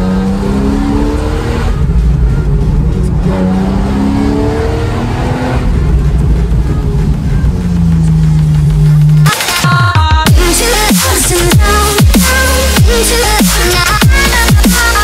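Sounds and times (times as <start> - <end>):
car engine revving through gears: 0.0 - 9.6.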